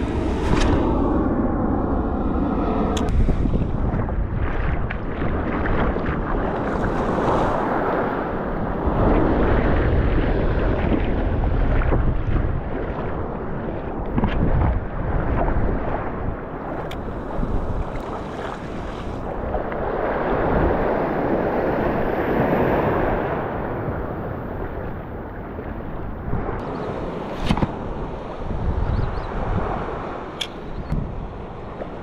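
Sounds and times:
surf washing up a beach: 0.0 - 32.0
wind buffeting microphone: 0.0 - 32.0
sharp click: 30.4 - 30.6.

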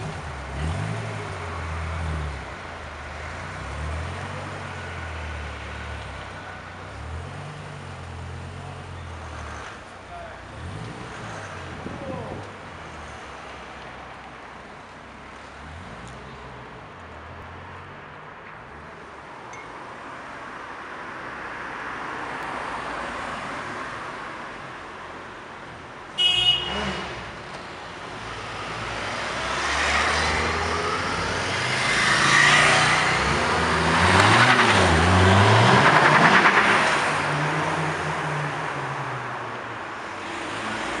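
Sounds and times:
street traffic: 0.0 - 41.0
car engine accelerating: 28.5 - 38.5.

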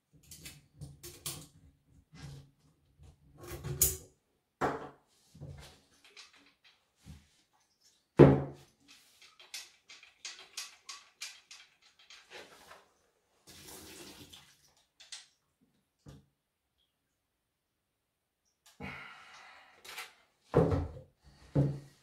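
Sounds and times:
liquid sloshing and pouring: 9.0 - 15.4.

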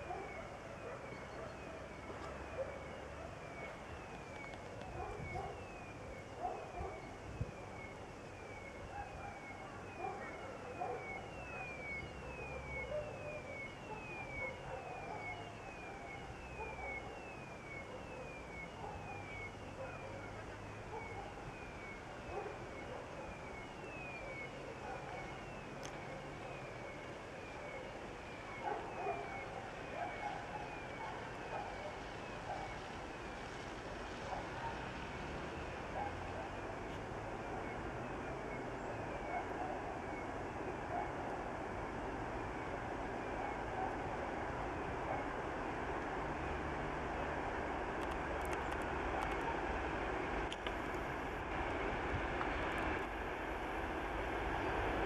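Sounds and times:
level crossing warning tone: 0.0 - 33.4.

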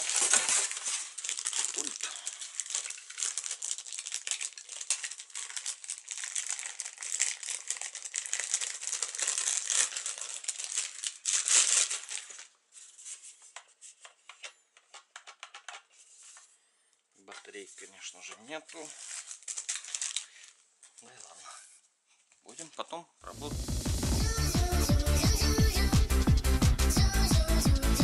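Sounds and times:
plastic bag crinkling: 0.0 - 13.1, 17.6 - 21.4.

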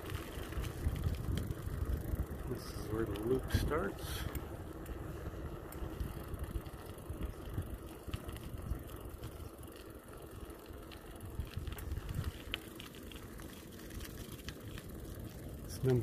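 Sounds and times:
wind rumble on microphone: 0.0 - 9.5, 11.1 - 12.9
bicycle tyre noise on road: 0.0 - 16.0
bike clicks and rattles: 0.0 - 16.0.

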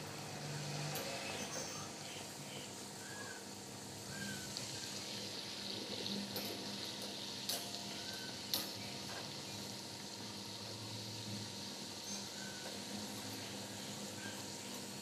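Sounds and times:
dough sizzling in hot oil: 0.0 - 15.0.

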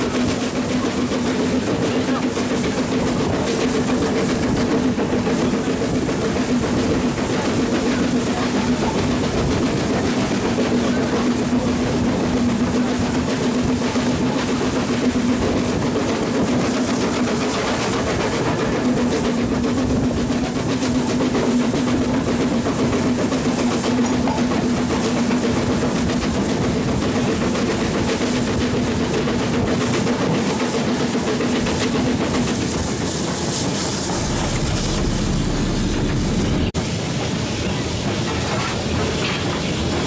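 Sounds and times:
steam locomotive wheels rumbling: 0.0 - 40.0
constant hum: 34.0 - 36.8.

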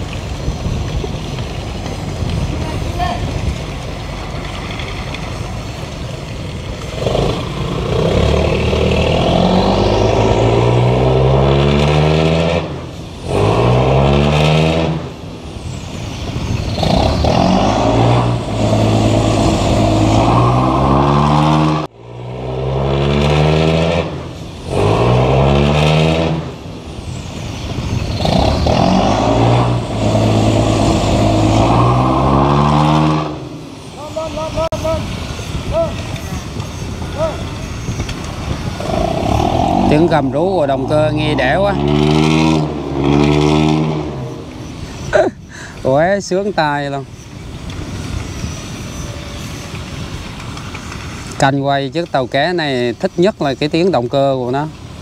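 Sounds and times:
diesel boat engine revving: 6.8 - 15.2, 16.7 - 26.6, 28.1 - 34.5, 38.3 - 45.2.

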